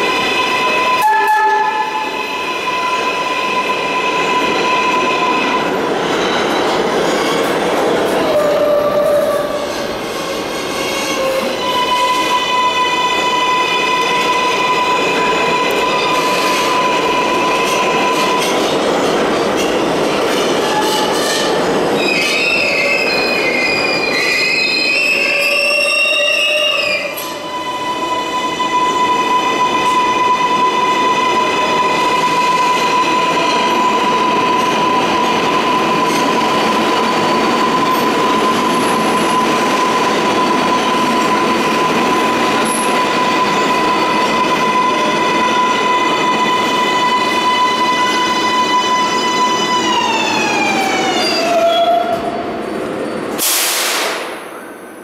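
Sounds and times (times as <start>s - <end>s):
subway train whining: 0.0s - 55.0s
train wheels squealing: 20.3s - 53.4s.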